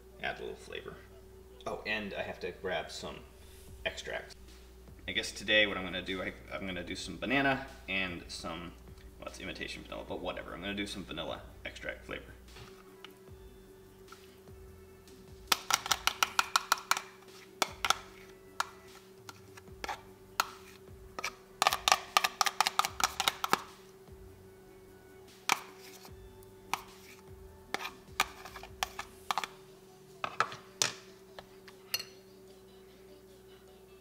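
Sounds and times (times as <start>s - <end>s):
faint steady hum: 0.0s - 34.0s
metal spoon tapping and scraping: 15.5s - 23.7s, 25.4s - 26.1s, 26.7s - 29.6s, 31.7s - 32.2s.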